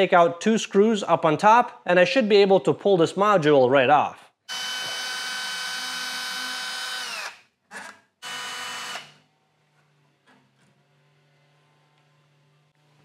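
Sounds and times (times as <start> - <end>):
cordless drill whining: 4.5 - 9.2.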